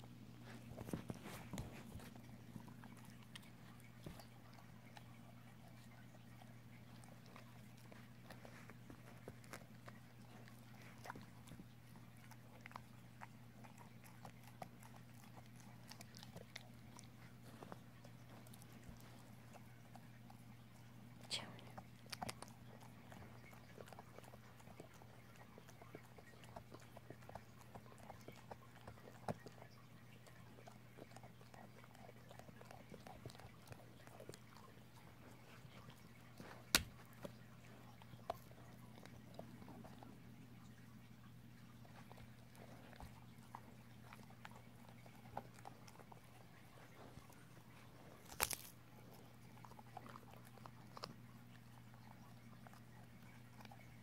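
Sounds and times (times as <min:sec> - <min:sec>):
dog gnawing on bone: 0:00.0 - 0:54.0.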